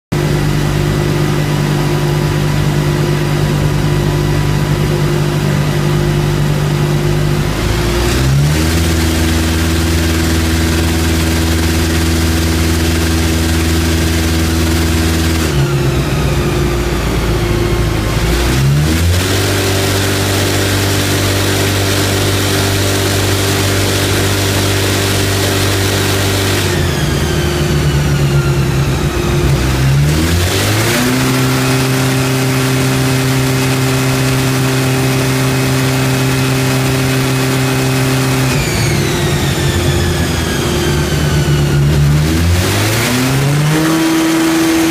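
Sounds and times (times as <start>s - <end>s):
motorcycle engine on dyno: 0.0s - 44.9s.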